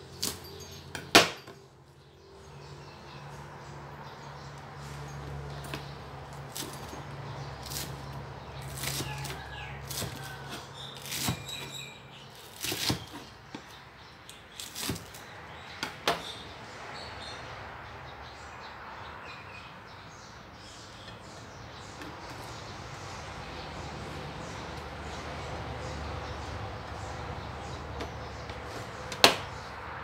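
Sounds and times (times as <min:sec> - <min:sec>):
lettuce leaves tearing: 0:06.3 - 0:06.9, 0:07.5 - 0:13.2, 0:14.6 - 0:15.2
knife cutting lettuce on board: 0:07.6 - 0:11.7, 0:12.4 - 0:13.3.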